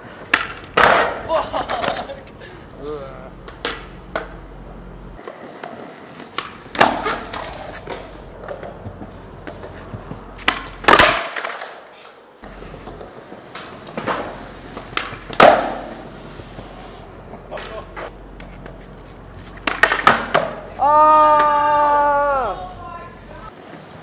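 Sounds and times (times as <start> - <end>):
skateboard wheels rolling: 0.0 - 24.0
skateboard clacking on concrete: 0.1 - 2.2, 5.2 - 21.6.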